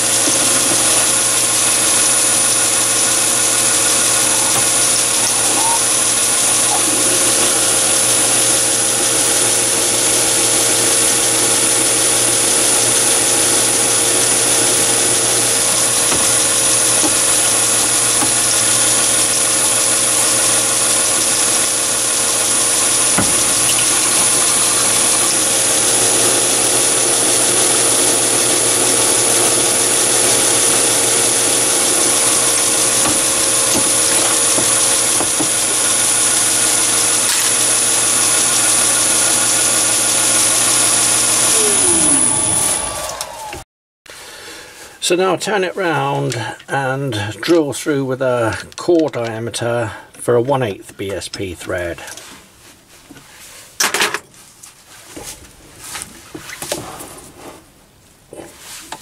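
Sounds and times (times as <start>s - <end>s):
high-pitched machine whine: 0.0s - 43.6s
lathe hum: 0.0s - 43.6s.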